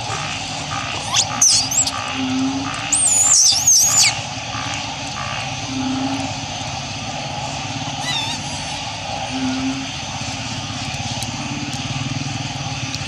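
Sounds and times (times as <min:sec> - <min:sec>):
monkey squealing: 0:00.0 - 0:02.1, 0:02.9 - 0:04.2, 0:08.0 - 0:08.9
steady background hum: 0:00.0 - 0:13.0.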